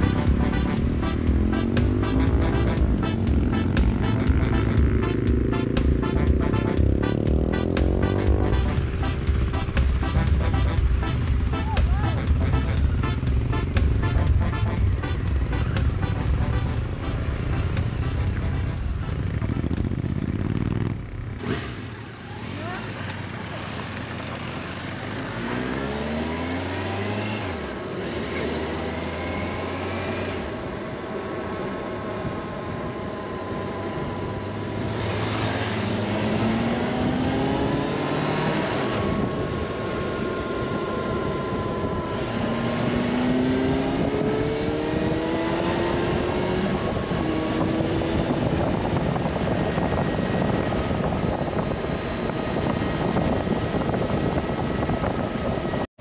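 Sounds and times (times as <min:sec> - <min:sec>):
motorcycle engine accelerating: 0:00.0 - 0:55.9
wind noise: 0:32.2 - 0:55.9.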